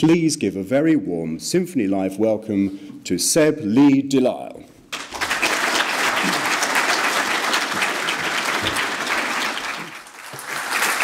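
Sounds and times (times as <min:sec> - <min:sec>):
large audience applauding: 0:04.9 - 0:11.0.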